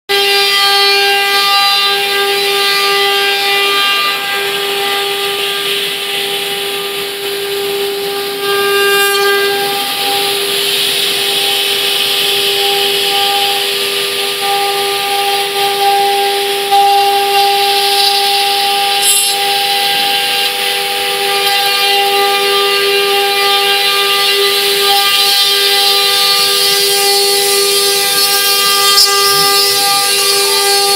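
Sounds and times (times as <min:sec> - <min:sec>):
router spindle whining: 0:00.2 - 0:30.9
bit cutting wood hiss: 0:17.7 - 0:20.1.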